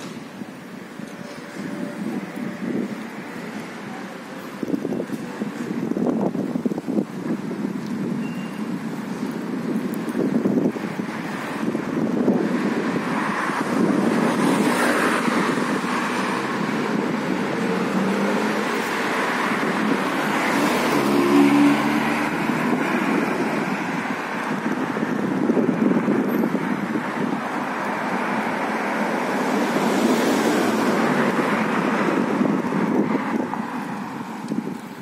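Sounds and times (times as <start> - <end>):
hum of passing cars: 9.2 - 35.0
vehicle engine passing: 14.6 - 24.0.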